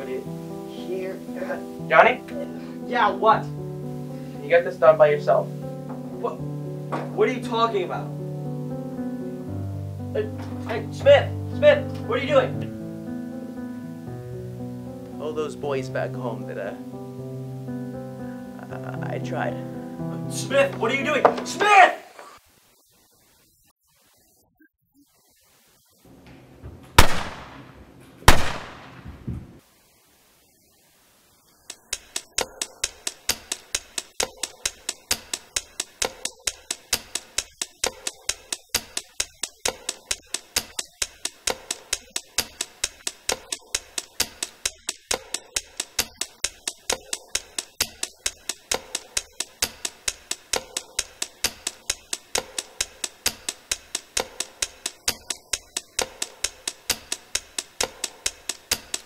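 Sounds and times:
rapid ticking: 0:31.6 - 0:59.0.

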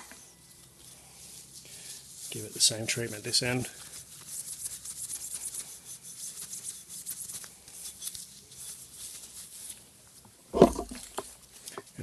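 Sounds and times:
steel wool scrubbing metal: 0:00.8 - 0:09.8.

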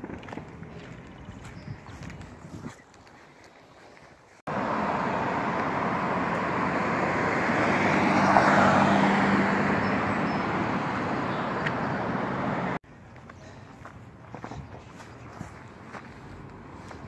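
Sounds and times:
cars driving past: 0:04.5 - 0:12.8.

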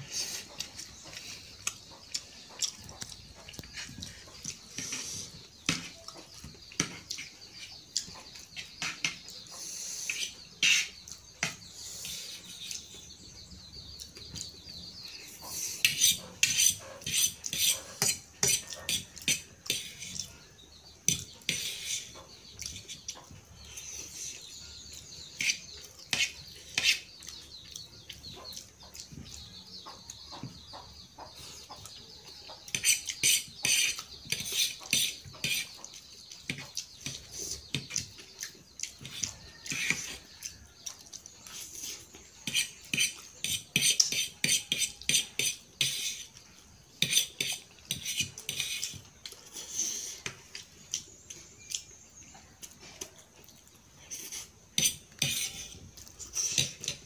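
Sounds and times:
fork scraping on a plate: 0:02.6 - 0:07.7, 0:08.5 - 0:12.9, 0:15.4 - 0:24.6, 0:25.2 - 0:27.4, 0:32.6 - 0:38.1, 0:38.8 - 0:40.6, 0:41.4 - 0:50.7, 0:54.0 - 0:57.0.

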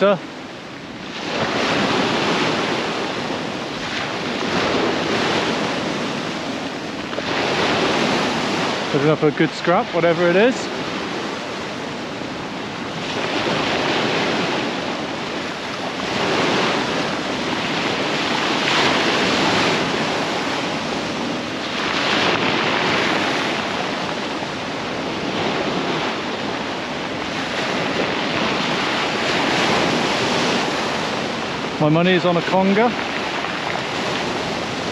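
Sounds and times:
surf breaking on shingle beach: 0:00.0 - 0:34.9
wind buffeting microphone: 0:00.0 - 0:34.9.

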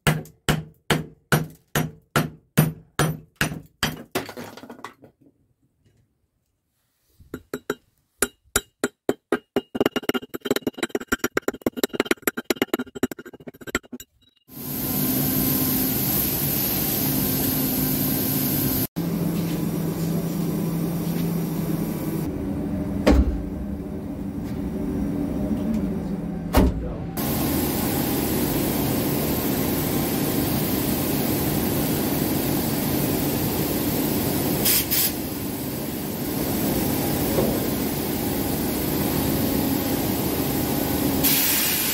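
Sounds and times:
metal-on-metal taps: 0:07.3 - 0:14.1
sandblasting machinery humming: 0:14.5 - 0:22.9, 0:27.2 - 0:41.9.

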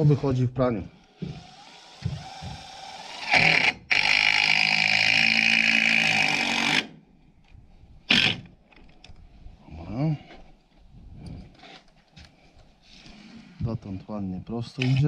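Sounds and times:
cordless driver screwing into wood: 0:01.2 - 0:06.9, 0:08.1 - 0:09.2.

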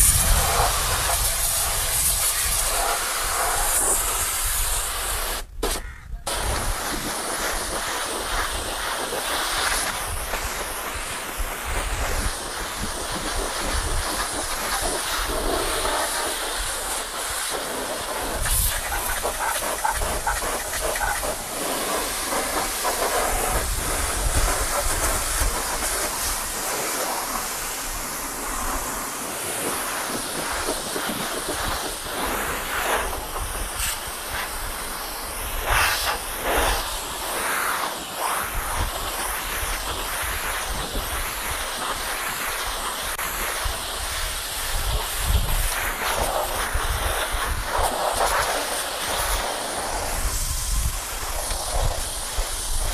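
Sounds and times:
pressure washer spraying metal: 0:00.0 - 0:52.9.

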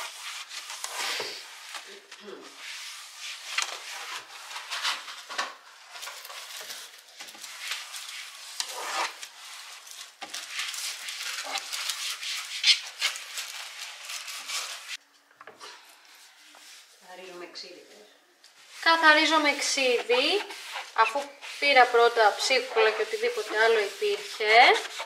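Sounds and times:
paper towel wiping shelves: 0:00.0 - 0:15.0, 0:18.6 - 0:25.0.

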